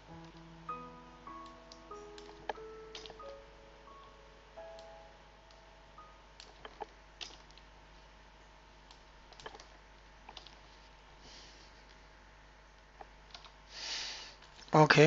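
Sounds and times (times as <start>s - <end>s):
steady low hum: 0.0s - 15.0s
keyboard keystrokes: 1.4s - 3.4s, 6.4s - 7.7s, 8.9s - 10.6s, 13.3s - 13.6s
mouse clicks: 8.9s - 10.6s.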